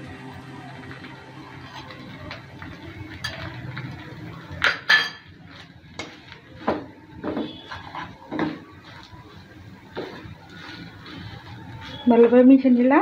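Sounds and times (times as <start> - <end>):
spatula scraping a frying pan: 7.4 - 9.0.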